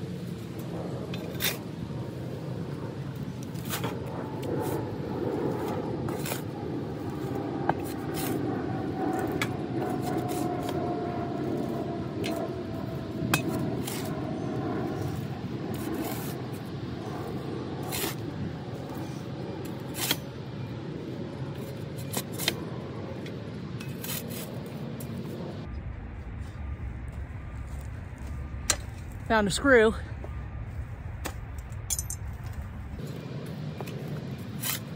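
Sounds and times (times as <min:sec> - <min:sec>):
shovel digging in soil: 0:06.1 - 0:06.6, 0:07.2 - 0:08.4, 0:09.1 - 0:10.8, 0:13.3 - 0:14.1, 0:15.7 - 0:16.4, 0:17.8 - 0:18.2, 0:19.0 - 0:20.4, 0:21.6 - 0:22.6, 0:23.8 - 0:25.2, 0:33.8 - 0:34.9.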